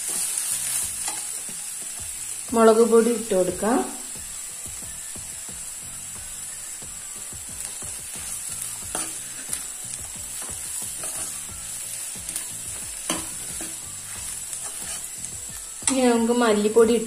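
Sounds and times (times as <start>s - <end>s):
onions sizzling in a pan: 0.0s - 17.0s
spoon scraping a pan: 8.1s - 9.7s, 10.3s - 16.0s.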